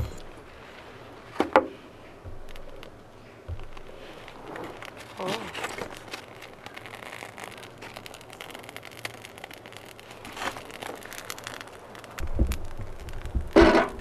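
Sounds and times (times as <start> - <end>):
handling noise: 0.0 - 14.0
clatter in metal stove: 6.8 - 14.0.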